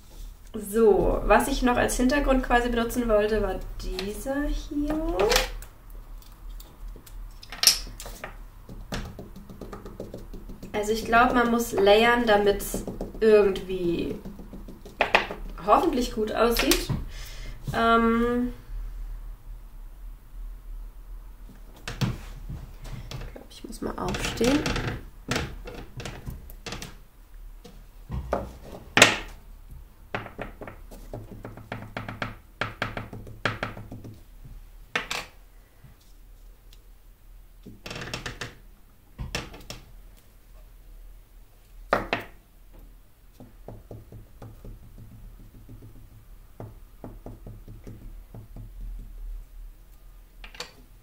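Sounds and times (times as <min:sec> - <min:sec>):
rubber stamps knocking on table: 0:08.2 - 0:10.8, 0:14.1 - 0:15.6.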